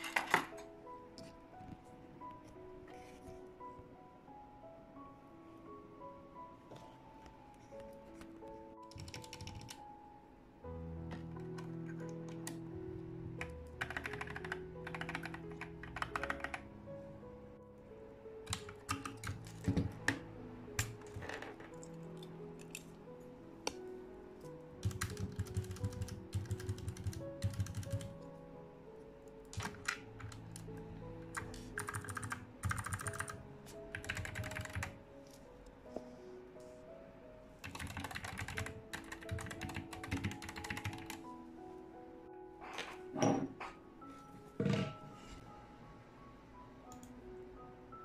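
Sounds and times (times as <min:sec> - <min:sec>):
background music: 0:00.0 - 0:48.0
mechanical keyboard keystrokes: 0:08.9 - 0:09.8, 0:13.4 - 0:16.6, 0:18.5 - 0:20.2, 0:24.8 - 0:28.1, 0:31.4 - 0:34.9, 0:37.6 - 0:41.2.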